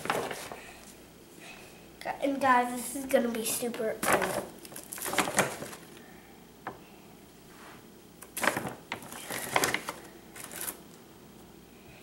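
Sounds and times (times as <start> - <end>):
paper bag rustling and crinkling: 0.0 - 0.8, 4.0 - 6.0, 8.3 - 11.0.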